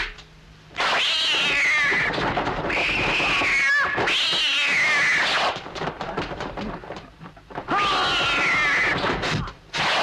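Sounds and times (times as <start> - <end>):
cat yowls: 0.8 - 5.5, 7.7 - 9.1.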